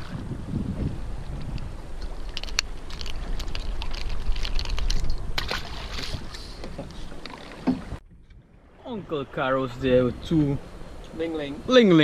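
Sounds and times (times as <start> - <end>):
water splashing against boat: 0.0 - 12.0
wind rumble on microphone: 0.0 - 12.0.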